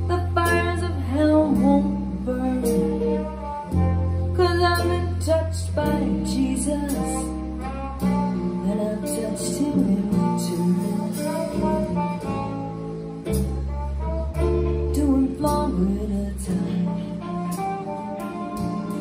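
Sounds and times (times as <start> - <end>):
instrumental music over loudspeakers: 0.0 - 19.0.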